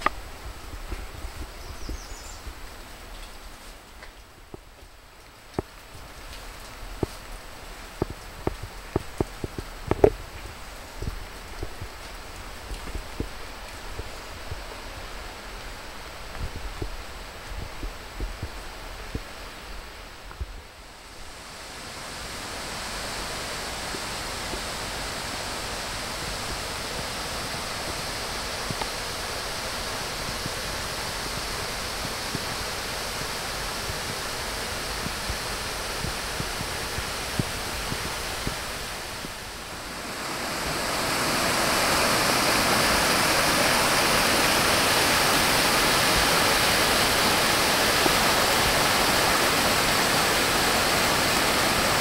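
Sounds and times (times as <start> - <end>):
water rushing over rock: 21.1 - 52.0.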